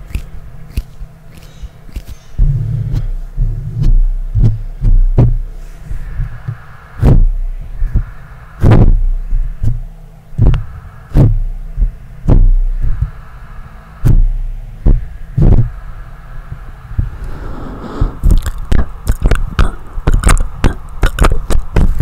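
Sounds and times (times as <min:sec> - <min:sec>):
air gusts into microphone: 0:02.3 - 0:22.0
hand swishes: 0:17.0 - 0:19.8.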